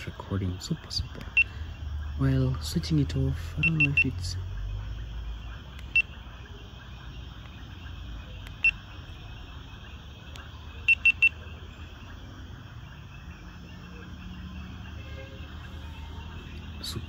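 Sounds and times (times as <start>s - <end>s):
camera beeps: 3.6s - 4.1s, 5.8s - 6.1s, 8.4s - 8.8s, 10.3s - 11.4s.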